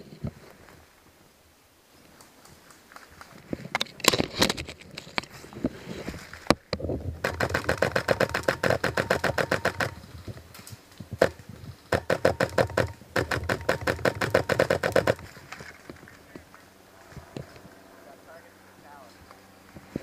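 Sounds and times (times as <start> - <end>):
airsoft rifle firing bursts: 7.2 - 10.0, 11.2 - 15.4.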